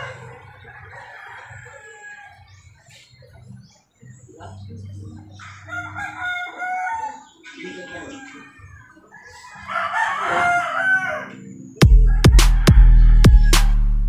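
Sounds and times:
rooster crowing: 0:00.0 - 0:02.6, 0:05.4 - 0:13.9
loud music with heavy beat: 0:11.8 - 0:14.0.

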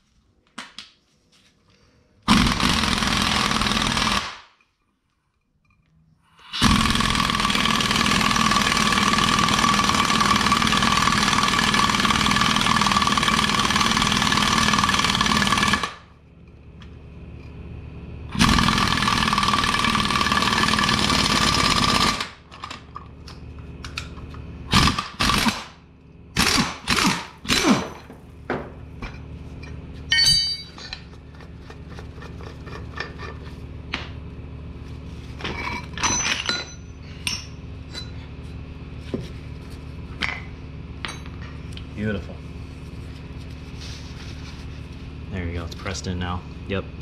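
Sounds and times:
ringing metal clank: 0:30.1 - 0:31.1, 0:35.6 - 0:38.2.

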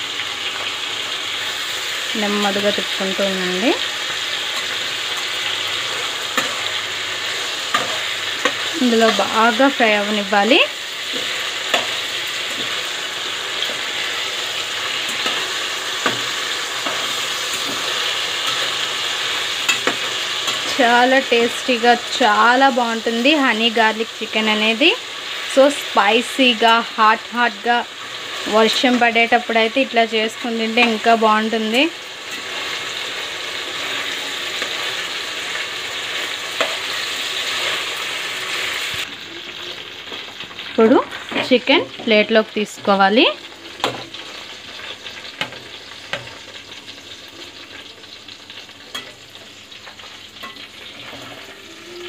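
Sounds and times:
chicken sizzling in a pan: 0:00.0 - 0:52.0
spatula scraping and tapping pan: 0:15.0 - 0:18.9, 0:19.6 - 0:20.8, 0:43.8 - 0:46.7, 0:48.9 - 0:51.4
metal spatula tapping pan: 0:19.7 - 0:20.7, 0:48.9 - 0:49.2.

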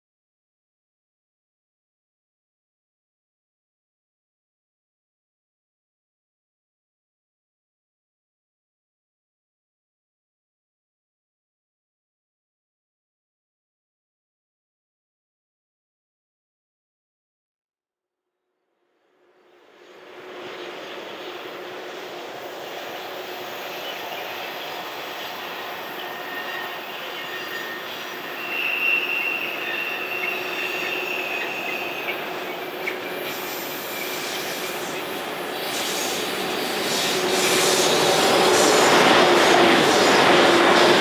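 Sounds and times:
electric train running noise: 0:19.6 - 0:41.0
high wheel squeal: 0:22.6 - 0:40.9.

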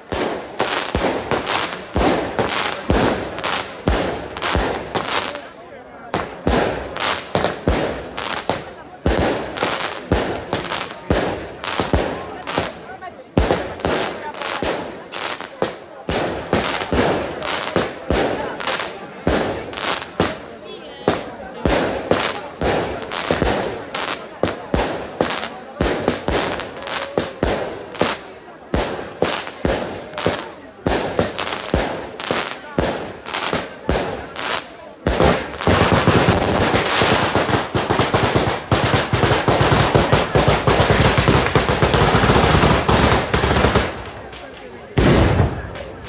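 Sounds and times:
firecracker battery crackling: 0:00.0 - 0:46.0
firework shells bursting with bangs: 0:21.1 - 0:46.0.

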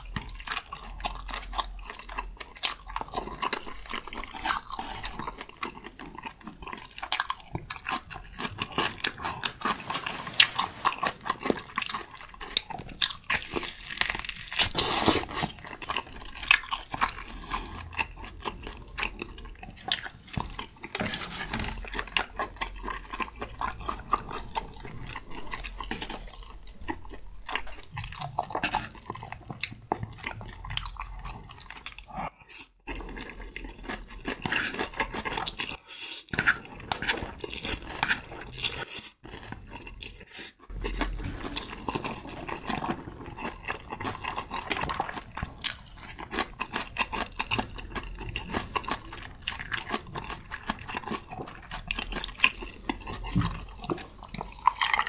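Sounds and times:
slurping and chewing noodles: 0:00.0 - 0:55.0.

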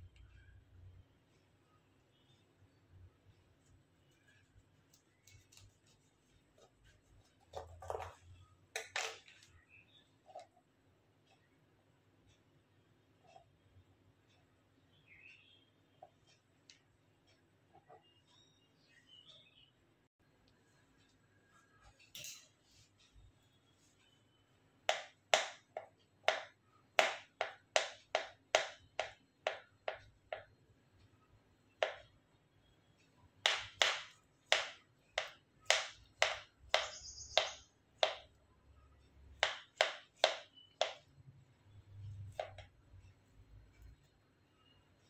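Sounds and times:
knife chopping on plastic board: 0:24.9 - 0:30.6, 0:33.4 - 0:38.3, 0:39.4 - 0:41.1, 0:42.2 - 0:42.7.

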